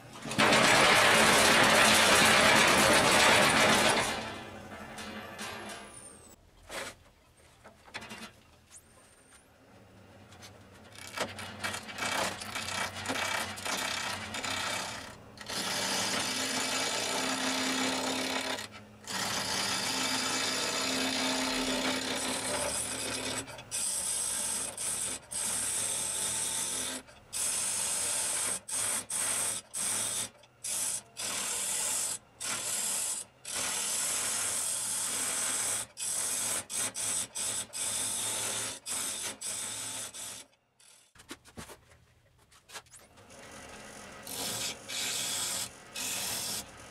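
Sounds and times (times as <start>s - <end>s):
chisel scraping spinning wood: 0.2s - 6.0s, 10.9s - 24.6s.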